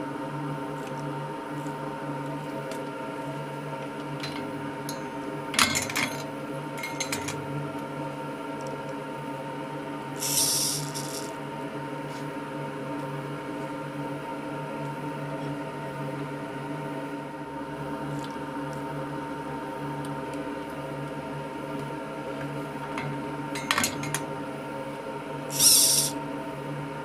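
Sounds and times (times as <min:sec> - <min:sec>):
electrical hum: 0:00.0 - 0:27.0
short hiss: 0:10.2 - 0:11.2, 0:25.5 - 0:26.1
metal tools clicking on metal: 0:10.2 - 0:11.3, 0:23.6 - 0:24.2, 0:25.5 - 0:26.1.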